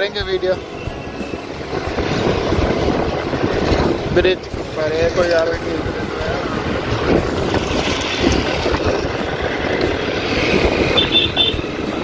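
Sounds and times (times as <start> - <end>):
wind buffeting microphone: 0.8 - 12.0
scooter engine running: 6.0 - 12.0.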